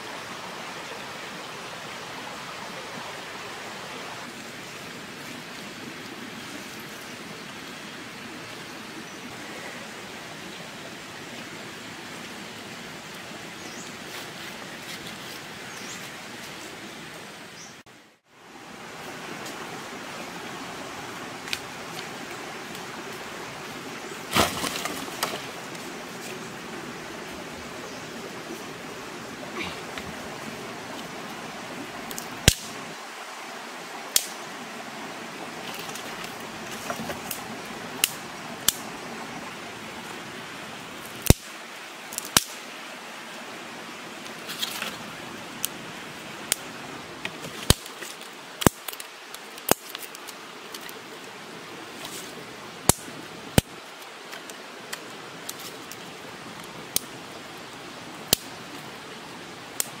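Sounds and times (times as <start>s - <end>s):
steady background hiss: 0.0s - 60.0s
sticks snapping and stones knocking: 24.3s - 25.5s, 47.2s - 51.0s.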